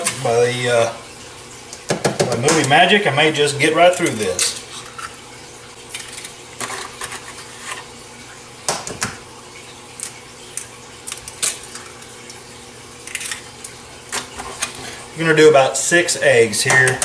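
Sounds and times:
eggshells cracking: 0:13.0 - 0:13.8.

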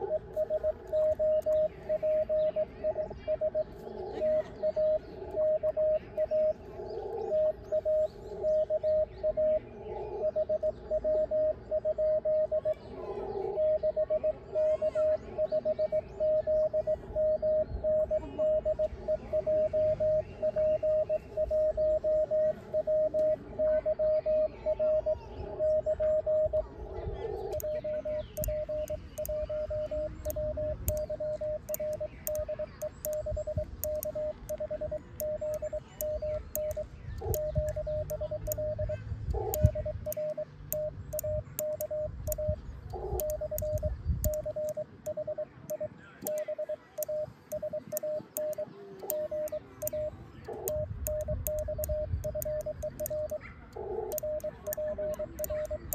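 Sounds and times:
morse code tone: 0:00.0 - 0:06.6, 0:10.2 - 0:12.8, 0:13.6 - 0:26.7, 0:27.5 - 0:53.4, 0:54.1 - 0:55.9
quiet morse sidetone: 0:00.0 - 0:55.9
paddle key clicks: 0:27.4 - 0:55.9.

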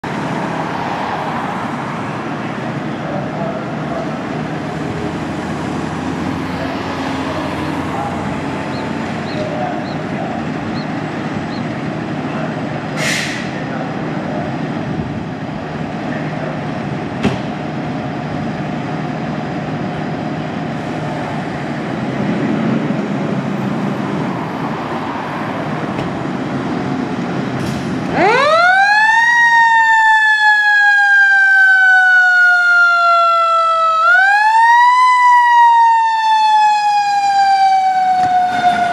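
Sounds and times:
car passing: 0:00.0 - 0:14.0, 0:20.7 - 0:30.0
diesel engine idling: 0:01.4 - 0:28.6
brief hiss: 0:13.0 - 0:13.6
siren wailing: 0:28.1 - 0:38.9.

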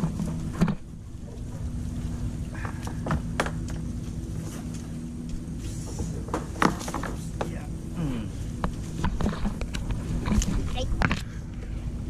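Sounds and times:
low steady hum: 0:00.0 - 0:12.0
kayak paddles knocking on branches: 0:02.5 - 0:07.6.

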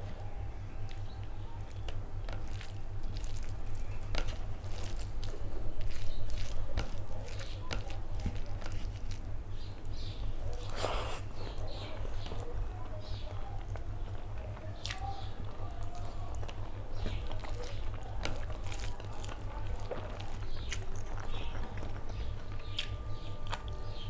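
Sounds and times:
fingers squishing food: 0:00.0 - 0:24.0
steady low hum: 0:00.0 - 0:24.0
mouth sound eating: 0:10.5 - 0:24.0.

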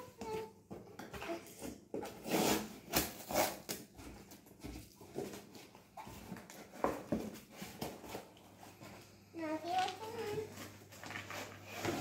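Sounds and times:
packing tape ripping: 0:02.1 - 0:03.8.

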